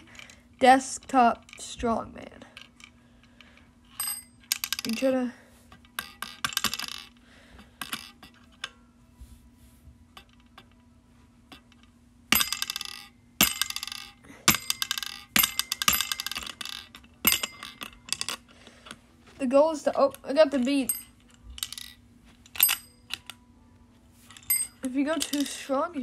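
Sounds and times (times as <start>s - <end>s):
metallic bell ring: 20.8s - 21.2s, 24.4s - 24.9s.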